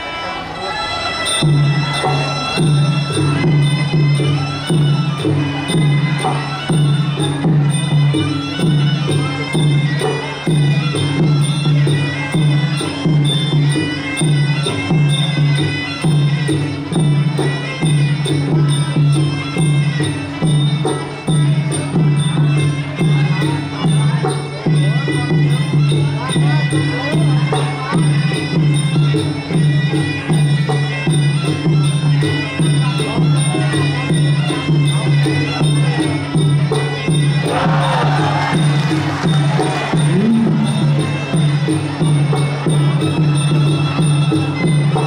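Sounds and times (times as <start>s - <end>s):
steady drum beat: 37.3s - 43.2s.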